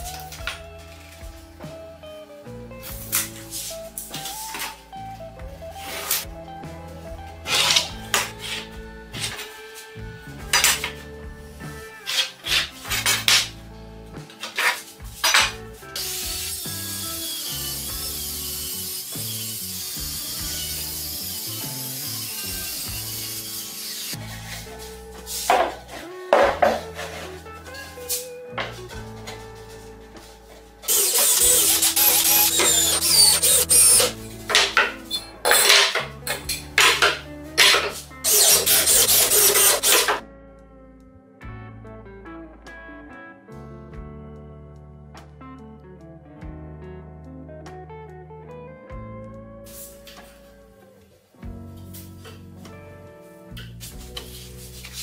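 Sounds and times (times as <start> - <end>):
background music: 0.0 - 55.0
cordless drill driving screws: 7.5 - 8.6, 30.9 - 40.2
pencil scratching on plywood: 37.6 - 40.2.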